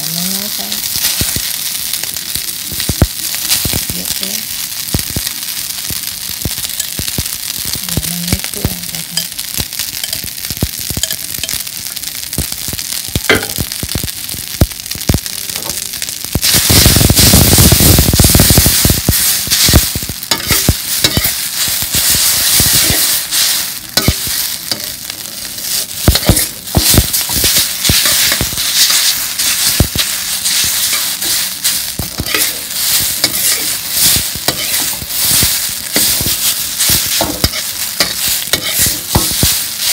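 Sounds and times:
noodles sizzling in wok: 0.0 - 39.9
metal utensil scraping wok: 16.4 - 39.9.

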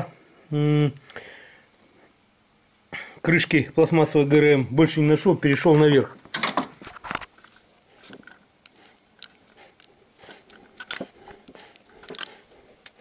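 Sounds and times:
light clicks and taps of tools: 7.4 - 13.0.

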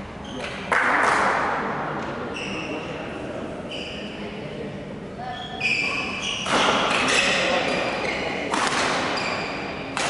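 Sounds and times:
shoes squeaking on sports floor: 2.3 - 2.9, 3.6 - 4.2, 5.3 - 9.8.

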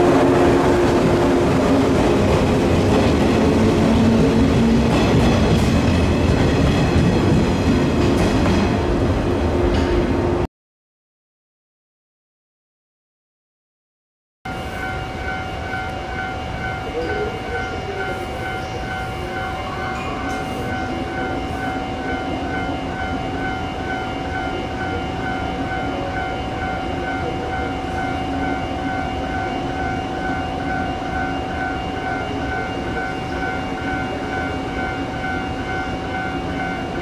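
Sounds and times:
train equipment humming: 14.5 - 37.0.

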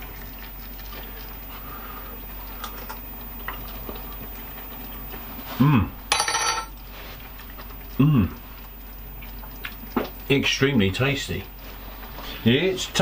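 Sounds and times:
man humming mmm: 5.5 - 6.0, 7.9 - 8.4.

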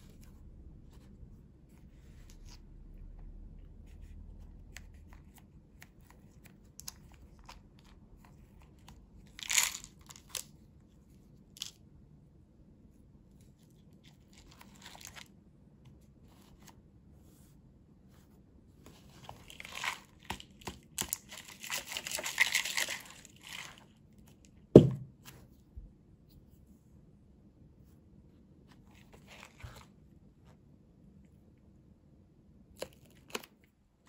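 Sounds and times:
plastic wrap crinkling: 19.3 - 23.9.

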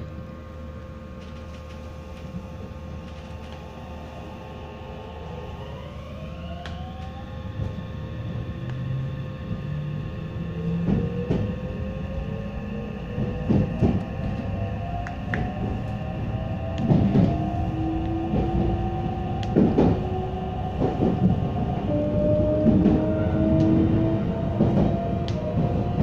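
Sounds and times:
electric train motors whining: 1.2 - 26.0
train wheel knocks: 13.2 - 14.0, 19.5 - 20.1.

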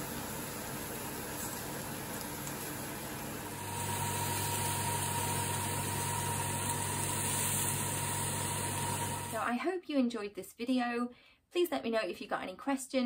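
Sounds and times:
food sizzling on griddle: 0.0 - 9.4.

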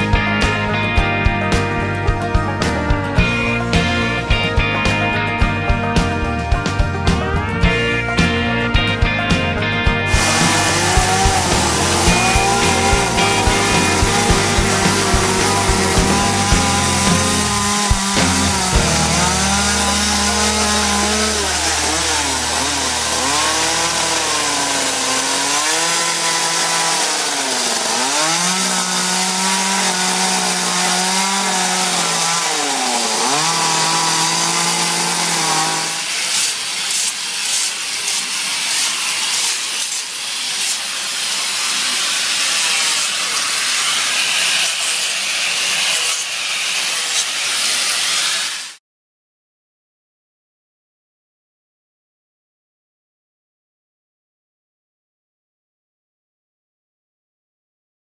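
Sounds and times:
chainsaw running: 0.0 - 48.8
angle grinder rasping on wood: 10.1 - 48.8.

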